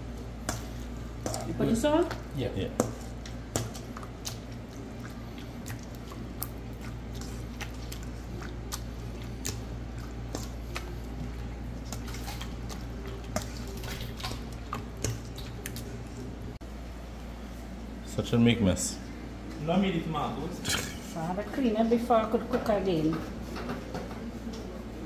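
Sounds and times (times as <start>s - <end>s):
wet squishing of mashing: 0.0s - 16.6s.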